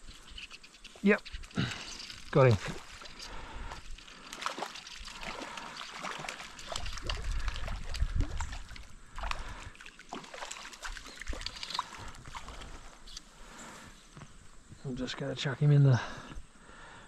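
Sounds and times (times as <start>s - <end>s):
fish splashing in water: 2.7s - 12.9s.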